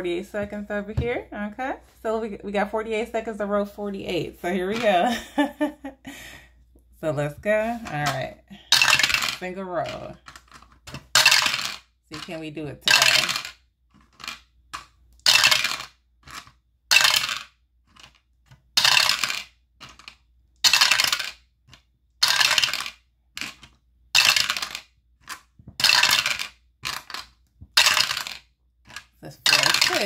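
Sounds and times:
dice rattling in dice roller: 7.8 - 30.0.

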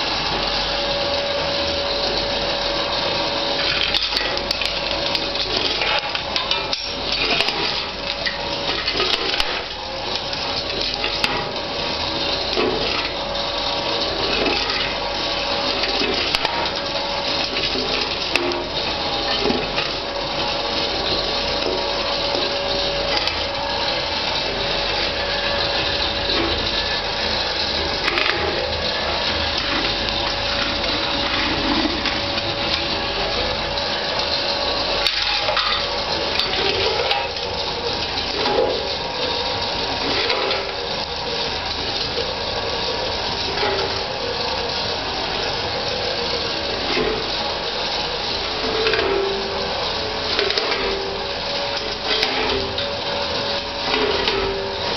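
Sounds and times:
coke lumps cracking: 0.0 - 54.9
jaw crusher humming and rattling: 0.0 - 54.9.

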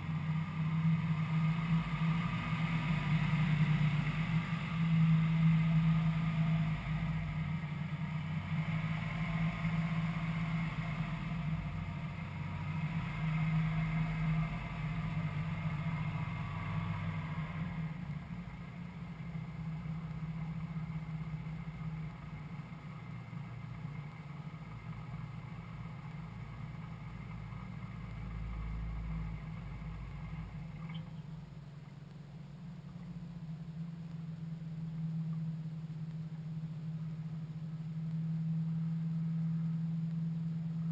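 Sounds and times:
light aircraft engine idling: 0.0 - 40.9.

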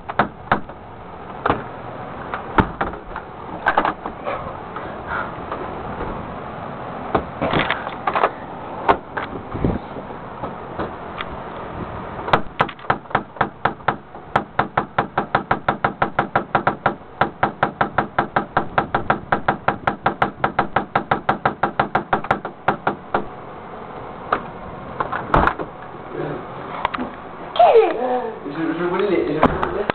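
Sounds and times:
loud bangs on a door: 0.0 - 0.8, 2.6 - 4.1, 12.3 - 23.3, 25.3 - 25.7.

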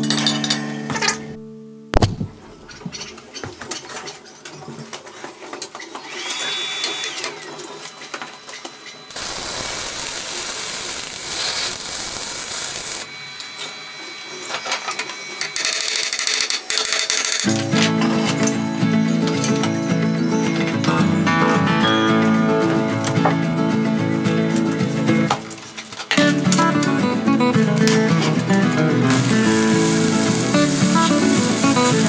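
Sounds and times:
power tool whine: 6.0 - 7.6, 9.1 - 15.6, 29.1 - 32.0
power tool noise: 6.0 - 7.7, 9.1 - 14.6, 29.1 - 32.0.

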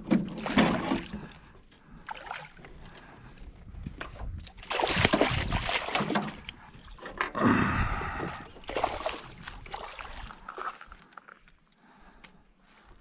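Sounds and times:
fish splashing in water: 4.6 - 6.6, 8.5 - 11.2.

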